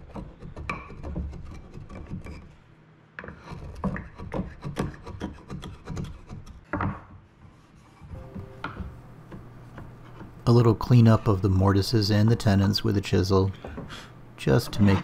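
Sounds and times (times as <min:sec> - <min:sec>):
wood chisel scraping wood: 0:00.0 - 0:02.5, 0:03.2 - 0:11.4, 0:13.6 - 0:15.0.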